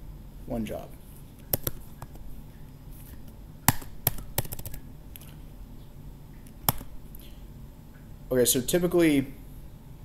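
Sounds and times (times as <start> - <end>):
keyboard key clicks: 1.5 - 1.8, 3.7 - 4.8, 6.6 - 6.9.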